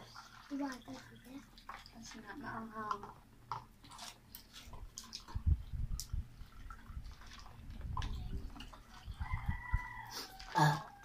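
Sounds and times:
chewing: 0:03.6 - 0:05.4.

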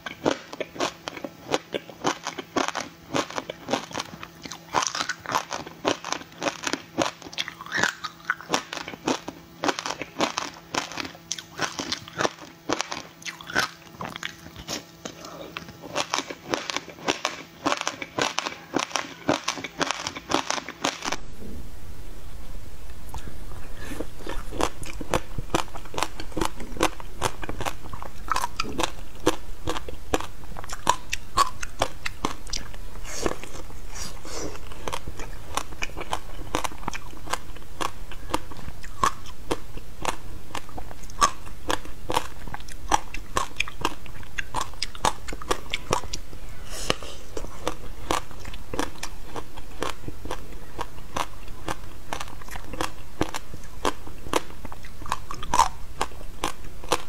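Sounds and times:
crunchy ice being chewed: 0:00.0 - 0:21.2, 0:23.9 - 0:46.2, 0:46.9 - 0:57.0.

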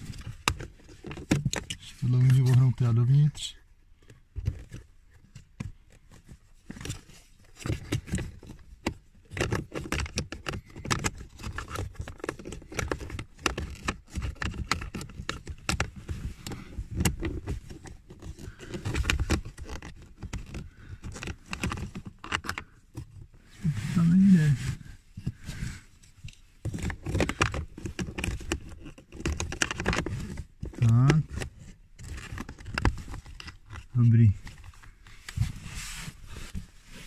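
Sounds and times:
plastic cover clicking and scraping: 0:00.0 - 0:02.7, 0:04.0 - 0:23.4, 0:24.8 - 0:35.6.

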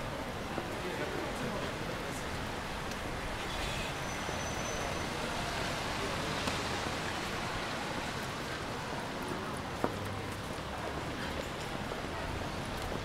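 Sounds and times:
road traffic hiss: 0:00.0 - 0:13.0.

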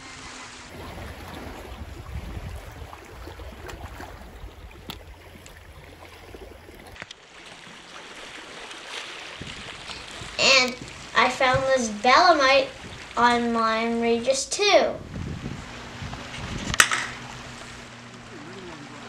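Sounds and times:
surf washing: 0:00.0 - 0:19.0
wind buffeting microphone: 0:00.7 - 0:07.0, 0:09.4 - 0:14.0, 0:14.8 - 0:18.0.

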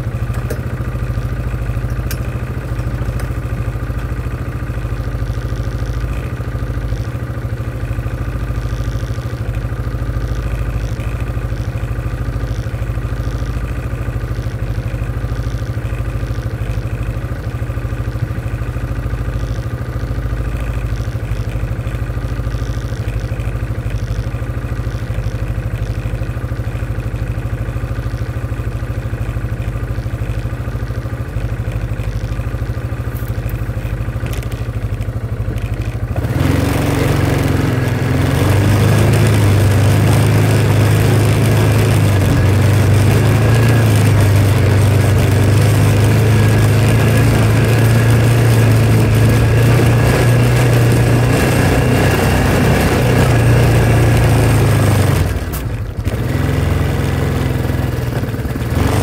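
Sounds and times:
vehicle engine running: 0:00.0 - 0:59.0.

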